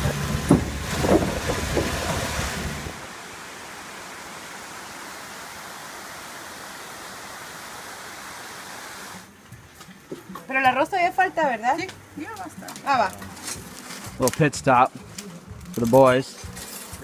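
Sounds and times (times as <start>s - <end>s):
vehicle engine running: 0.0s - 3.2s
river water rushing: 0.0s - 9.3s.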